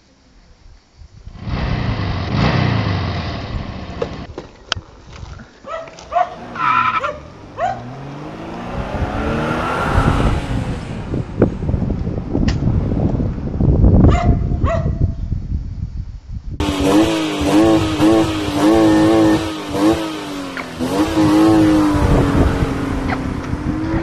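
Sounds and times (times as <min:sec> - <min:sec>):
car engine passing by: 0:06.3 - 0:11.9.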